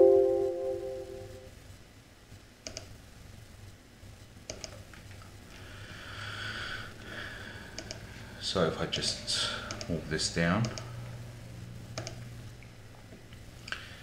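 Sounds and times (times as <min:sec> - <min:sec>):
computer mouse clicks: 0:02.6 - 0:02.9, 0:04.5 - 0:04.8, 0:07.8 - 0:08.0, 0:09.7 - 0:09.9, 0:10.6 - 0:10.9, 0:12.0 - 0:12.2.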